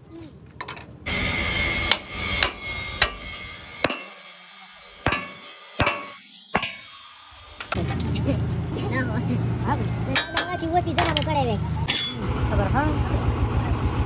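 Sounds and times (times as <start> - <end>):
hammer striking sheet steel: 1.1 - 7.8, 11.9 - 12.3.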